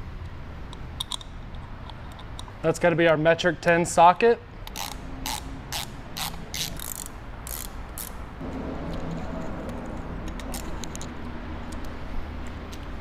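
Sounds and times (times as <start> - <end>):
ratchet wrench clicking: 4.6 - 8.2
mechanical rattle: 4.7 - 13.0.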